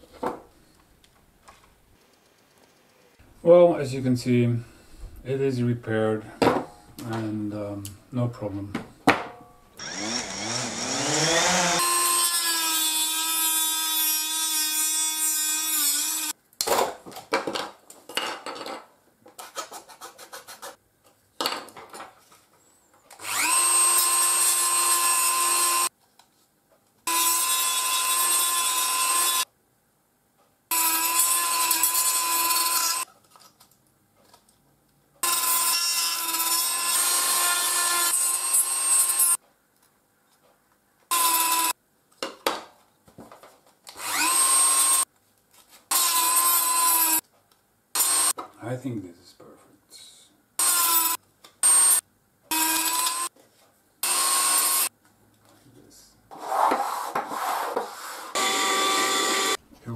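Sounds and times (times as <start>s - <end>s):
rotary tool grinding plastic: 9.8s - 12.8s.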